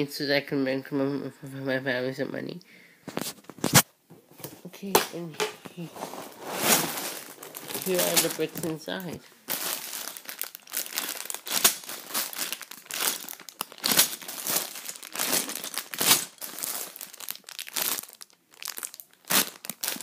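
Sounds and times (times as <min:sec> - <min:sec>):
plastic bags crinkling: 0:05.3 - 0:20.0.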